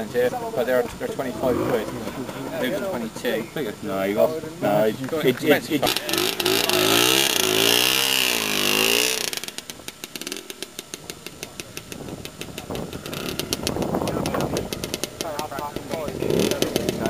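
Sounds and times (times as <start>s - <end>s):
scooter engine revving: 5.8s - 17.0s.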